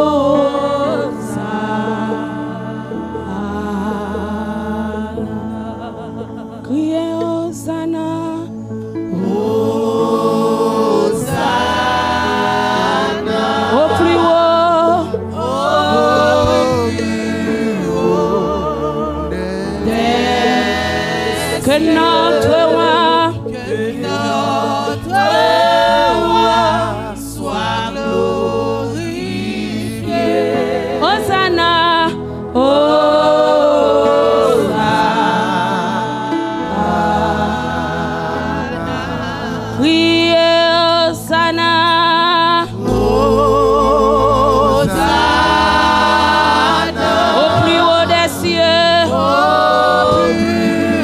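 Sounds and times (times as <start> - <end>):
women singing gospel song: 0.0 - 8.5, 9.1 - 51.0
instrumental backing: 0.0 - 51.0.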